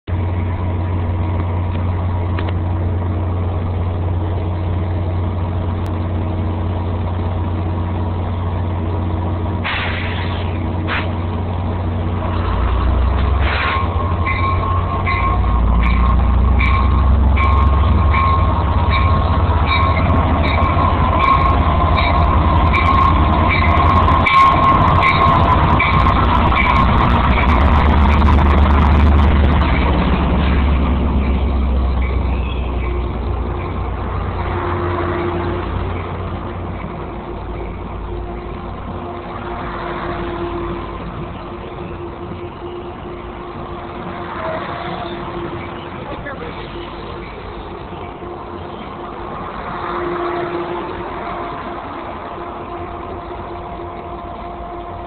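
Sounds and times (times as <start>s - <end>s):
train rumble: 0.0s - 55.0s
high squeal of wheels: 13.4s - 26.8s, 32.0s - 33.0s
bell ringing: 13.6s - 27.7s.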